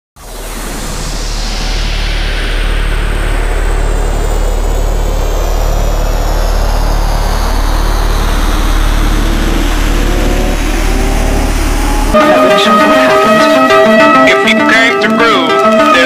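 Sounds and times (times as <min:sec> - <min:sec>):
low engine-like rumble: 0:00.2 - 0:13.8
music with plucked notes: 0:09.2 - 0:16.0.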